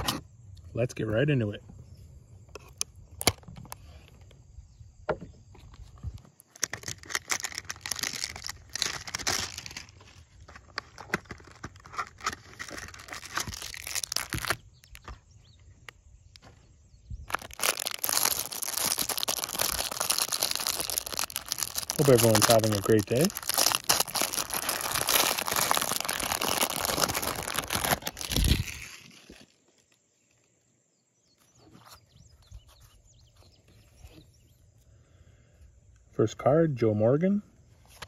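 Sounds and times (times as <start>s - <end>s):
packaging crinkling and tearing: 6.1s - 15.2s, 17.3s - 29.6s.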